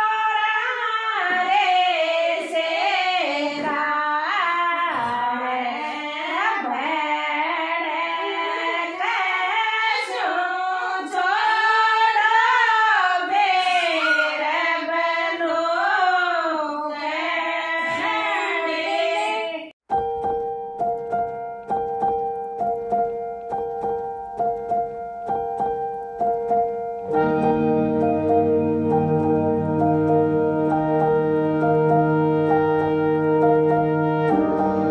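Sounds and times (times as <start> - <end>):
women singing a folk song: 0.0 - 19.7
electronic music with keyboard: 19.9 - 34.9.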